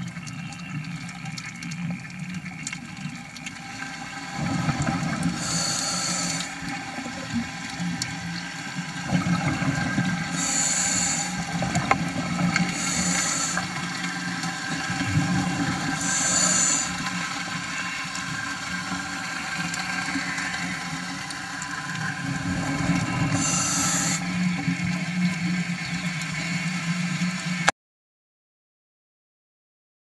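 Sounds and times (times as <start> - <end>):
underwater bubbling and rumbling: 0.0 - 27.7
diver inhaling through a regulator: 3.6 - 6.9, 9.2 - 24.6.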